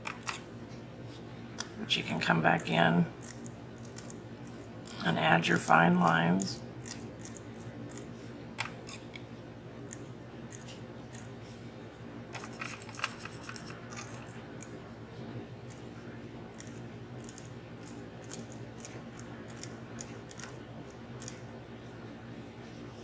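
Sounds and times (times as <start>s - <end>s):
metal nib scratching on glass: 0.0s - 0.4s, 2.5s - 9.2s, 9.9s - 11.3s, 12.4s - 14.7s, 15.7s - 15.9s, 16.5s - 20.6s
steady low hum: 0.0s - 23.0s.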